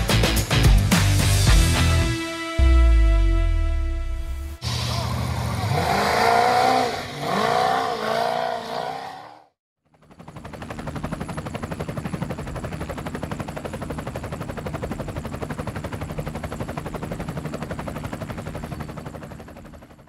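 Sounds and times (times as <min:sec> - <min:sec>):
drone propellers buzzing: 0:04.6 - 0:09.4.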